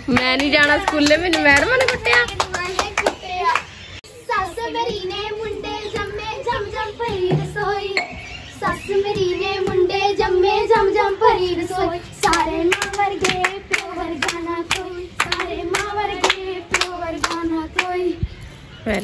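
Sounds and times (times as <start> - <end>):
sharp hand claps: 0.4 - 3.7
girl singing: 1.8 - 18.3.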